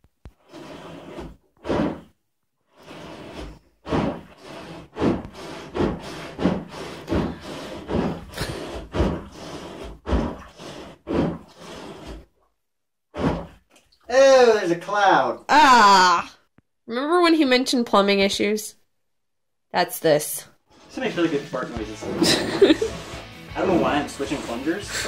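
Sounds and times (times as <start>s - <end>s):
plunger squelching in water: 0.2s - 2.1s, 2.8s - 12.5s, 13.1s - 14.1s, 20.7s - 25.0s.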